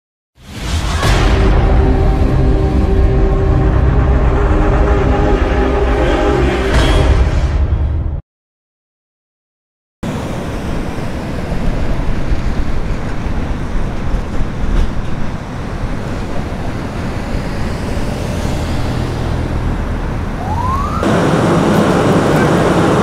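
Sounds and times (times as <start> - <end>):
traffic engines rumbling: 10.1 - 23.0.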